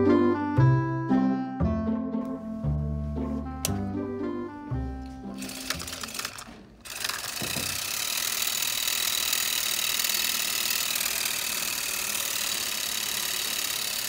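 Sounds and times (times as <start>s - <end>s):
small electric motor spinning: 5.3s - 14.0s.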